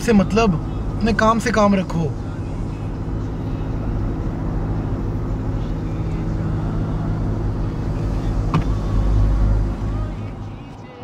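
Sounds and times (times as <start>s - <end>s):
car engine drone: 0.0s - 11.0s
road noise inside car: 0.0s - 11.0s.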